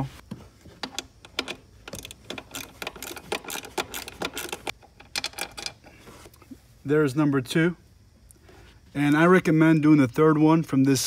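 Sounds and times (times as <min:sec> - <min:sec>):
socket ratchet clicking: 0:00.8 - 0:05.8.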